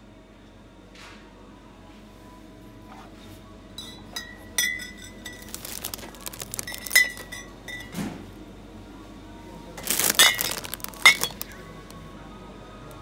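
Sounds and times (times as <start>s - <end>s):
glass clinking: 3.8s - 5.5s, 6.6s - 7.9s, 10.2s - 11.5s.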